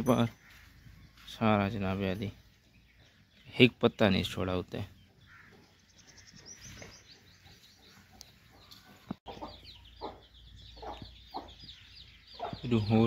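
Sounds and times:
chicks peeping: 0:04.9 - 0:13.0
hen clucking: 0:05.1 - 0:12.8.

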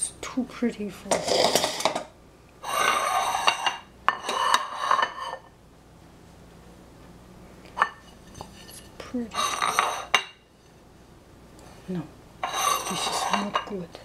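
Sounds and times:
ceramic plates clattering on tiles: 0:01.1 - 0:05.5, 0:07.8 - 0:10.4, 0:12.4 - 0:13.8.

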